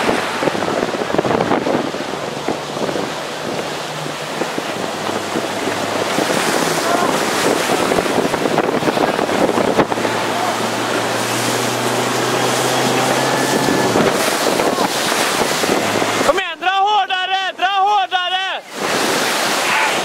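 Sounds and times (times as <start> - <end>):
wind buffeting microphone: 0.0 - 16.5, 18.7 - 20.0
choppy water rushing and slapping: 0.0 - 20.0.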